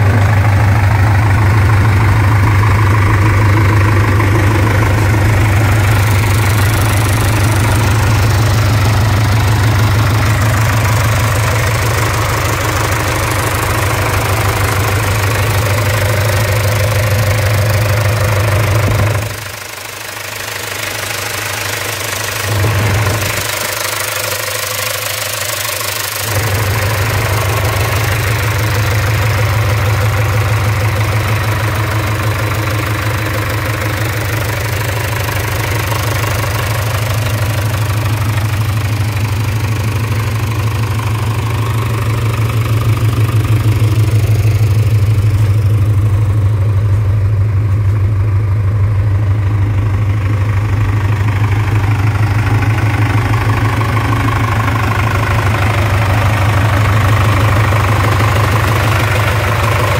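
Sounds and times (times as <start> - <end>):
truck engine idling: 0.0 - 59.9.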